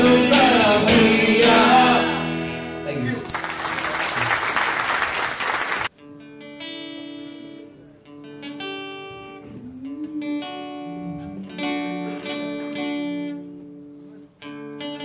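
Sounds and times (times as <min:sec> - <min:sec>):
acoustic guitar picked chords: 0:00.0 - 0:03.3
audience applauding: 0:03.2 - 0:05.9.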